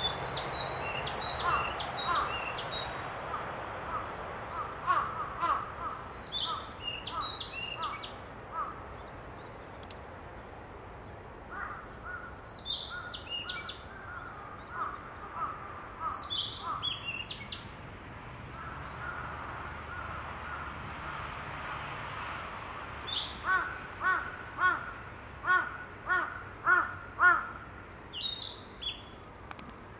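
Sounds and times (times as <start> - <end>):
other birds calling: 0.0 - 8.8, 11.5 - 17.6, 22.8 - 29.1.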